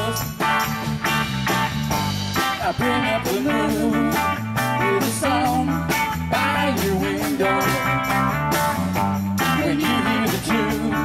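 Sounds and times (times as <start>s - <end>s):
bass guitar: 0.0s - 11.0s
electric guitar: 0.0s - 11.0s.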